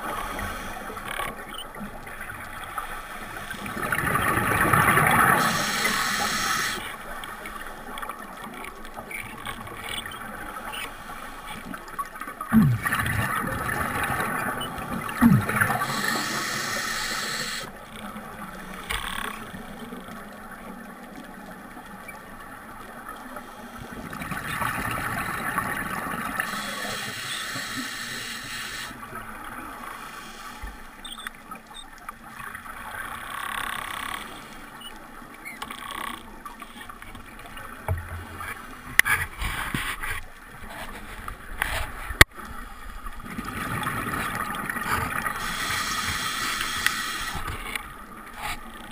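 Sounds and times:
exhaled bubbles rushing underwater: 0:03.4 - 0:06.8, 0:12.5 - 0:18.7.

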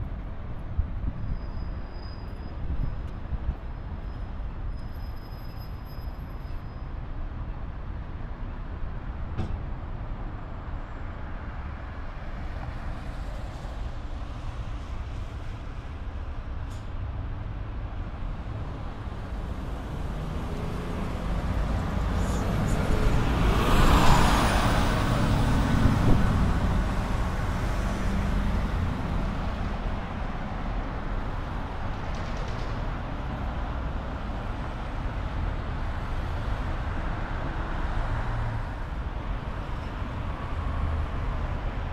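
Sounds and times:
low traffic rumble: 0:07.7 - 0:41.9
bus passing by: 0:10.5 - 0:41.9.

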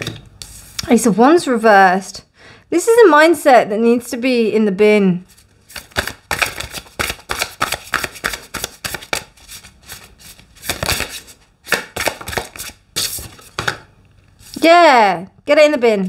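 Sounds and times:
cards being shuffled: 0:05.3 - 0:13.8.

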